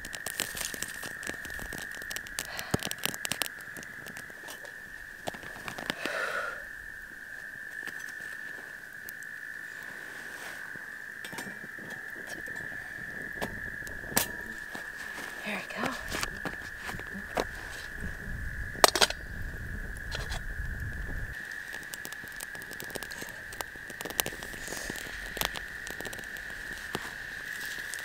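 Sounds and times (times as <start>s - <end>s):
twigs crackling and popping in fire: 0.0s - 28.0s.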